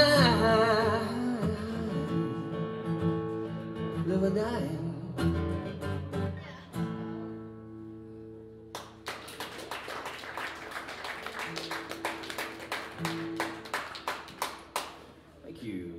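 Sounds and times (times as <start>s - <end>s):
audience applause: 8.8s - 15.1s.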